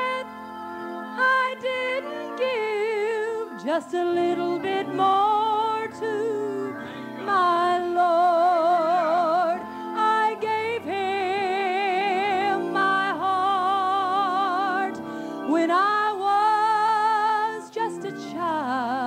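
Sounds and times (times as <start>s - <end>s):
woman singing gospel song: 1.2s - 19.0s.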